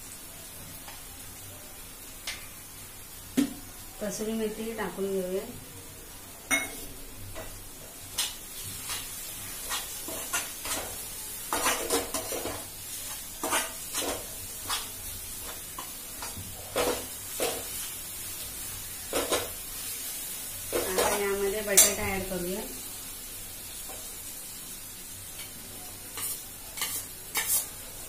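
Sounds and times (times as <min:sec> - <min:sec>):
soft sizzle of frying: 0:00.0 - 0:28.0
metal spatula scraping a pan: 0:08.1 - 0:18.0, 0:20.6 - 0:22.0, 0:25.4 - 0:28.0.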